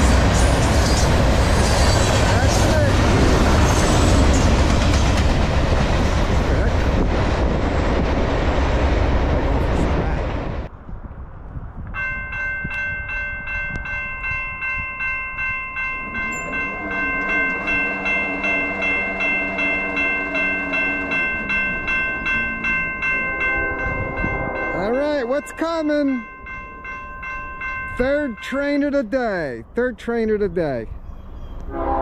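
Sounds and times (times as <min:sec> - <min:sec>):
crossing bell ringing: 0:12.0 - 0:29.6
distant train horn: 0:16.0 - 0:25.0, 0:31.6 - 0:32.0.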